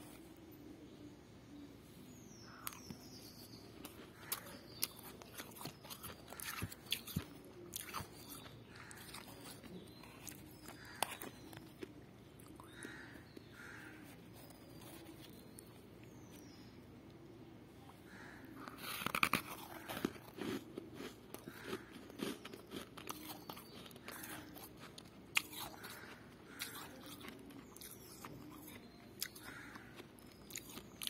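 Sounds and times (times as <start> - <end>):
frost crunching: 18.1 - 31.0.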